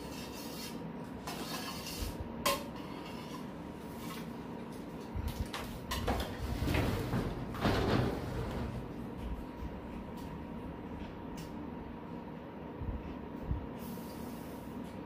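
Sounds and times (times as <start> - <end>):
metal spoon scraping steel bowl: 0.0 - 4.3.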